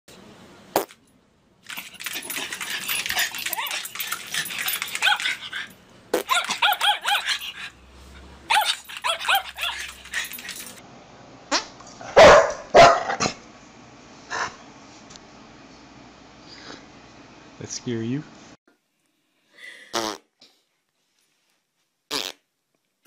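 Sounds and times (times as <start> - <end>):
small dog barking and yipping: 2.0 - 7.7, 8.5 - 10.8, 12.2 - 13.1.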